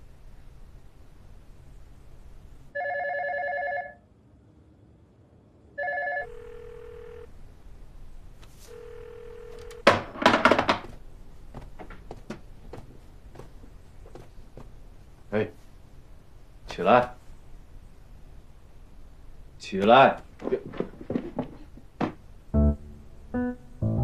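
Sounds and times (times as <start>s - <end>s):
electronic phone ringing: 2.8s - 4.0s, 5.8s - 7.3s, 8.6s - 10.0s
loud knocks and clatter: 9.8s - 12.9s, 20.4s - 22.3s.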